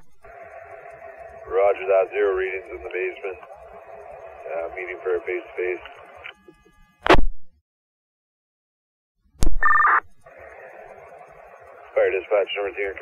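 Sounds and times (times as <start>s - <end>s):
radio channel hiss: 0.0s - 6.5s, 10.2s - 13.0s
two-tone electronic data burst: 9.5s - 13.0s.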